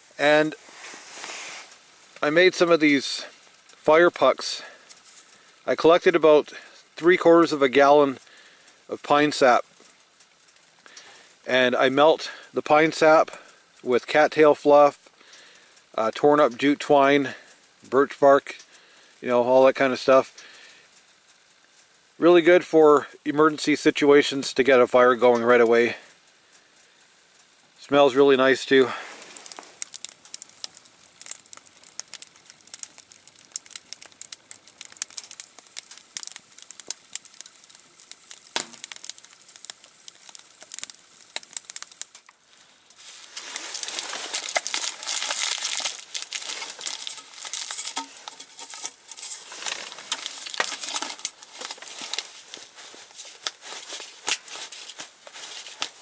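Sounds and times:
rustling: 0.0 - 3.8, 28.7 - 56.0
wood fire crackling in stove: 0.0 - 56.0.

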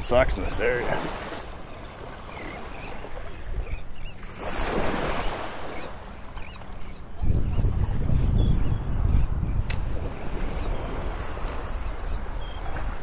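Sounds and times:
small waves lapping at shoreline: 0.0 - 8.4, 9.6 - 13.0
wind buffeting microphone: 2.9 - 13.0.

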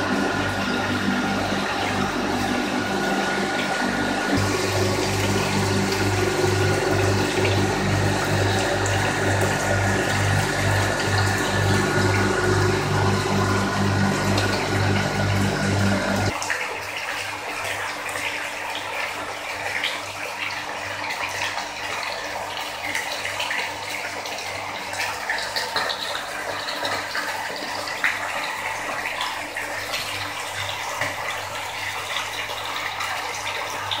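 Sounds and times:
pulsing low hum: 0.0 - 16.4
water pouring into a tub: 0.0 - 34.0.

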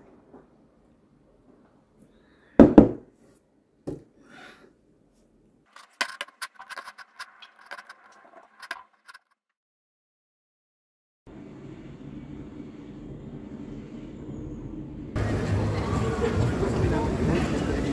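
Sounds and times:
ceramic mug knocking on desk: 2.6 - 3.0.

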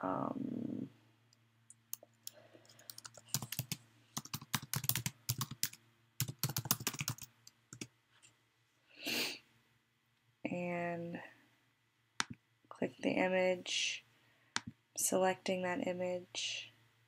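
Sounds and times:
typing on computer keyboard: 1.9 - 7.9.

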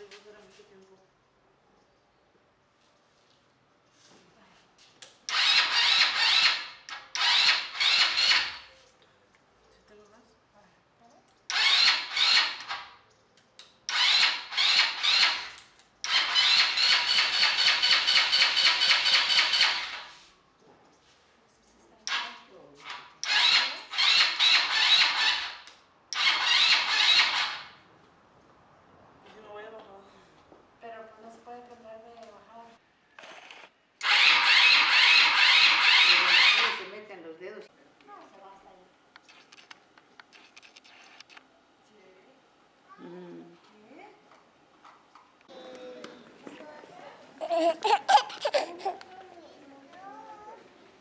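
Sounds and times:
electric starter cranking engine: 5.3 - 8.6, 11.5 - 12.8, 13.9 - 20.1, 23.2 - 27.8, 33.2 - 36.8.

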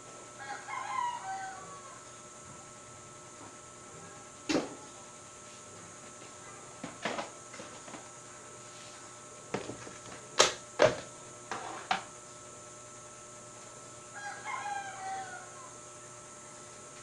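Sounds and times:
rooster crowing: 0.4 - 2.1, 14.1 - 15.8.

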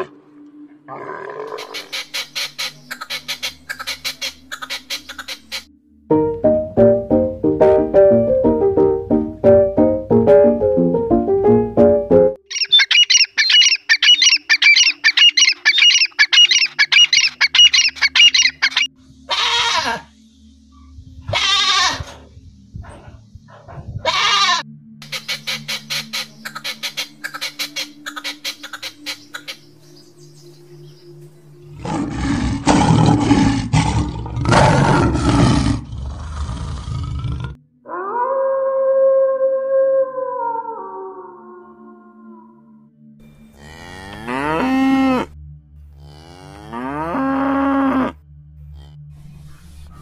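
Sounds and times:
lion roaring: 0.9 - 1.8, 31.6 - 38.2
falling bird calls: 1.5 - 5.7, 12.5 - 18.9, 24.4 - 31.1
partridge chirping: 1.8 - 5.6, 12.5 - 18.9, 25.0 - 31.5.

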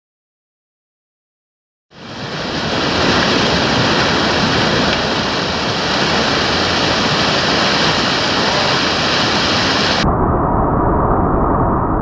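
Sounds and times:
whitewater rapids rushing: 2.0 - 10.0.

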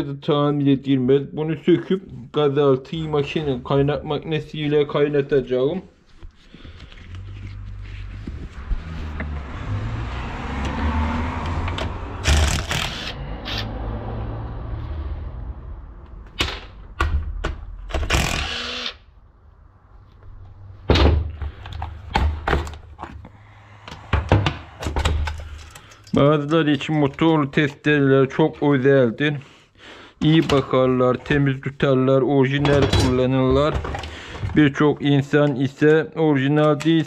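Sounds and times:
cordless drill-driver: 12.2 - 13.2, 17.9 - 19.0
tools and metal parts clattering: 24.8 - 26.3.

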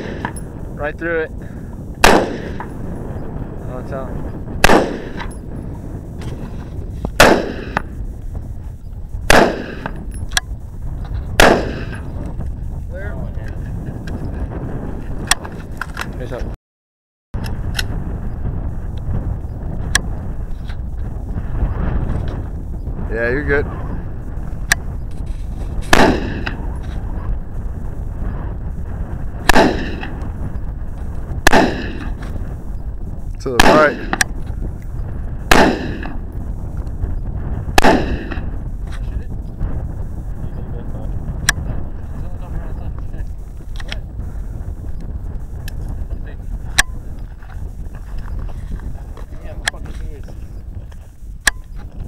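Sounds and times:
rifle shots with echo: 0.0 - 0.5, 2.0 - 2.9, 4.6 - 5.4, 7.2 - 8.0, 9.3 - 10.1, 11.4 - 12.1, 25.9 - 26.9, 29.4 - 30.2, 31.4 - 32.2, 33.5 - 34.4, 35.5 - 36.3, 37.8 - 38.6.

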